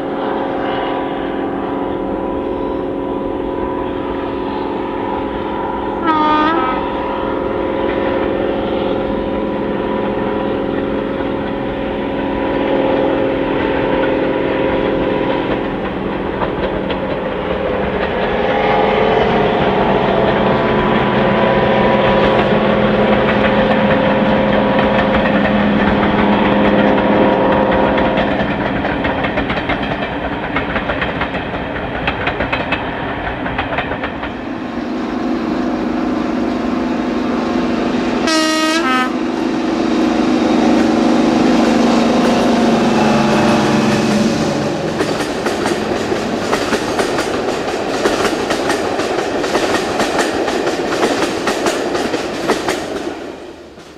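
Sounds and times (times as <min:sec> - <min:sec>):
locomotive horn blast: 0:00.0 - 0:11.0, 0:12.0 - 0:15.5, 0:38.0 - 0:45.0
train wheels clicking over rail joints: 0:10.0 - 0:12.6, 0:13.5 - 0:34.6, 0:40.8 - 0:53.9
diesel engine drone: 0:34.4 - 0:47.6.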